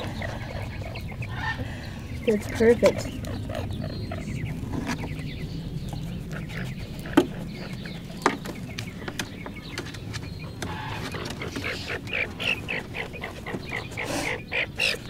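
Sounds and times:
skunk kits squeaking: 0:00.0 - 0:15.0.

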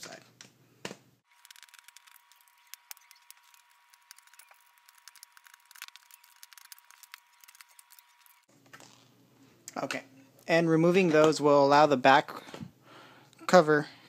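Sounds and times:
small plastic clicks and ticks: 0:01.4 - 0:08.5.

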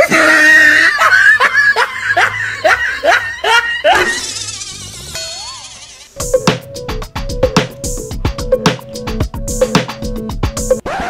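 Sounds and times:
person laughing: 0:00.0 - 0:04.7.

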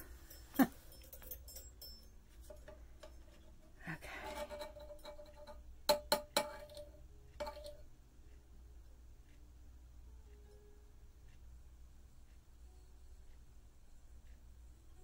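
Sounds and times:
metal tool clinking against pot: 0:00.0 - 0:07.8.

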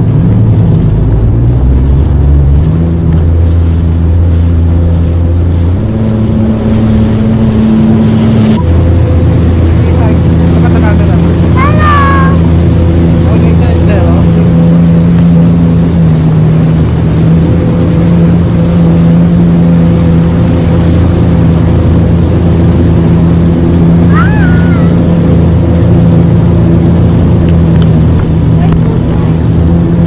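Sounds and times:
jet ski engine droning: 0:00.0 - 0:30.0
wind and water rushing: 0:00.0 - 0:30.0.

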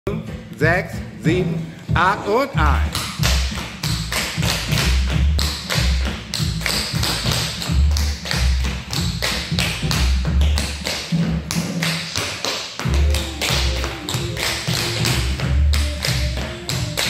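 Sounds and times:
background music: 0:00.1 - 0:17.0
tap shoes on wooden floor: 0:02.6 - 0:17.0.

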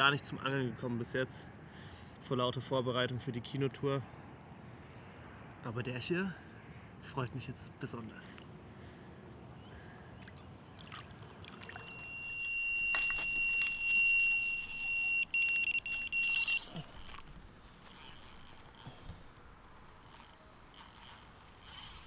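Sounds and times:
electronic bite alarm beeping: 0:11.7 - 0:17.2.

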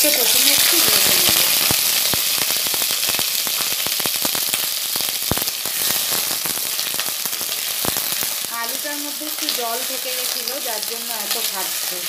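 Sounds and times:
potatoes sizzling in hot oil: 0:00.0 - 0:12.0.

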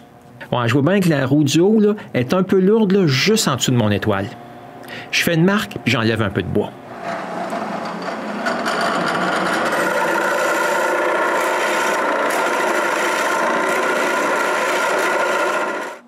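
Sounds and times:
drill press motor hum: 0:06.8 - 0:16.0
cutter grinding wood: 0:06.9 - 0:16.0.

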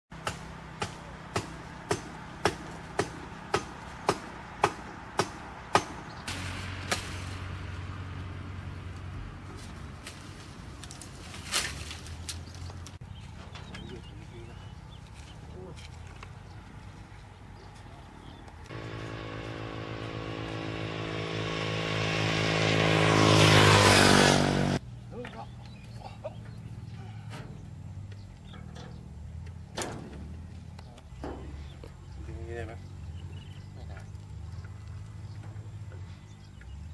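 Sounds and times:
truck engine passing by: 0:00.1 - 0:15.0, 0:18.6 - 0:25.1, 0:26.4 - 0:36.9
sharp knocks: 0:00.2 - 0:06.1.

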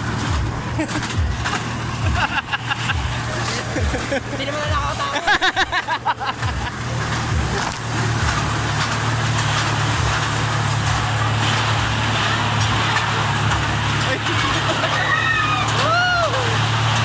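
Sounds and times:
ride car rattling on track: 0:00.0 - 0:17.0.

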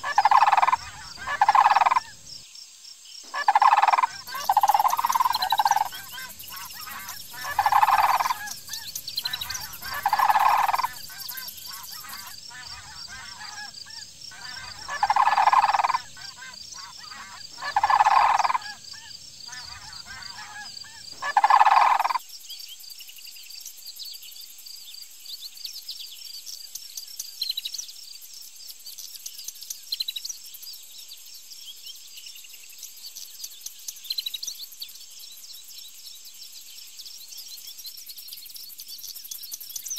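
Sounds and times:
cranes bugling: 0:00.0 - 0:02.1, 0:03.3 - 0:18.9, 0:19.5 - 0:22.2
small bird chirps: 0:00.0 - 0:02.4, 0:03.3 - 0:39.9.

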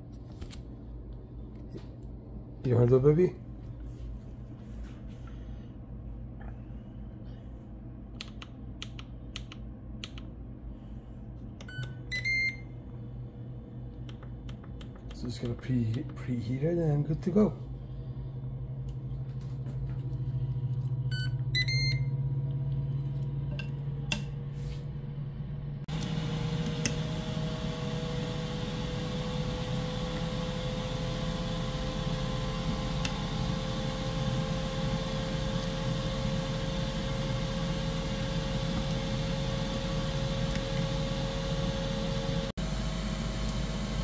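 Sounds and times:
low hum: 0:03.4 - 0:44.0
control panel beeps: 0:11.6 - 0:12.7, 0:21.1 - 0:22.1
fan whooshing and whining: 0:24.0 - 0:44.0.

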